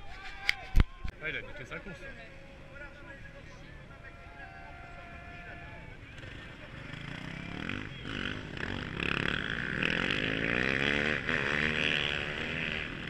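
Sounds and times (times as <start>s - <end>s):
motorcycle engines revving: 4.7s - 13.0s.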